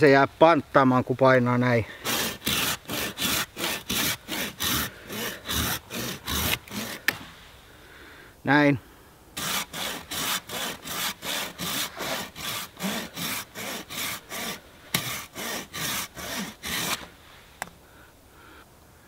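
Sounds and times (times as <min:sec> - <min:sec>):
hand saw rasping on stick: 0:01.9 - 0:07.2, 0:09.4 - 0:17.1.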